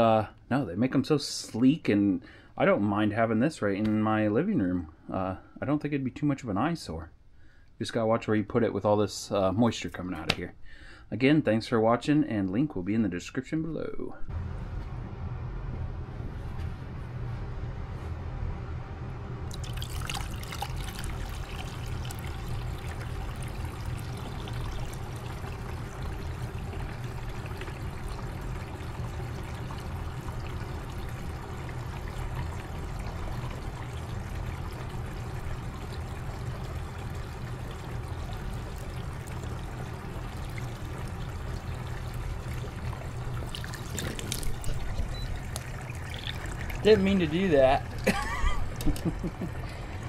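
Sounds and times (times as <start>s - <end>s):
humidifier low hum: 12.1s - 50.0s
water pouring into tank: 19.5s - 50.0s.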